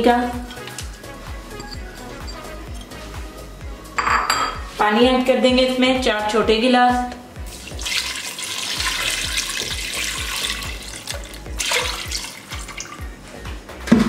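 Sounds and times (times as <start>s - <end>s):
water pouring into a pot: 7.5s - 13.0s.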